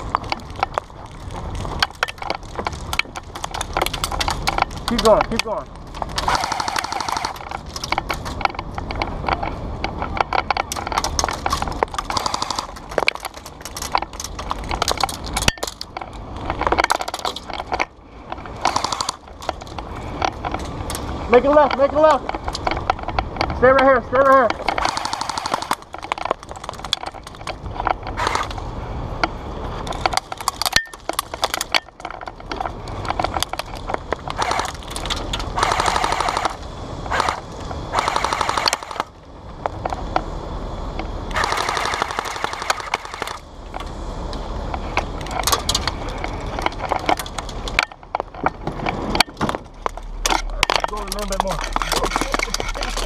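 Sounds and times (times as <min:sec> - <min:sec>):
airsoft guns firing: 0:06.2 - 0:07.5, 0:12.1 - 0:12.8, 0:18.6 - 0:19.2, 0:24.6 - 0:25.9, 0:35.6 - 0:39.1, 0:41.3 - 0:43.4.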